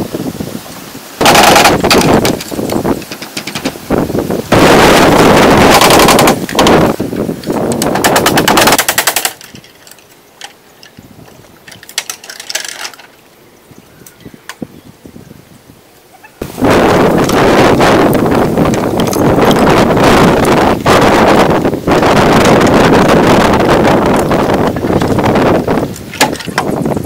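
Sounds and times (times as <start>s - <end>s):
bamboo clattering and cracking: 1.2s - 3.9s, 5.6s - 13.3s, 24.0s - 27.0s.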